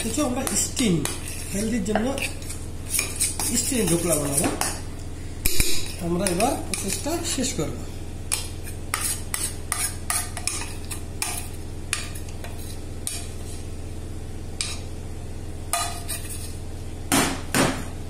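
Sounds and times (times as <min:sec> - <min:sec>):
metal spoon scraping steel bowl: 0:00.0 - 0:04.5, 0:05.5 - 0:07.4, 0:08.3 - 0:13.3, 0:14.6 - 0:14.9, 0:15.8 - 0:16.6
steady low hum: 0:00.0 - 0:18.0.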